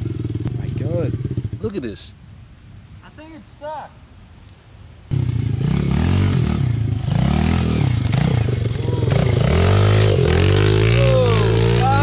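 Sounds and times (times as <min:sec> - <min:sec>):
dirt bike engine revving: 0:05.1 - 0:12.0.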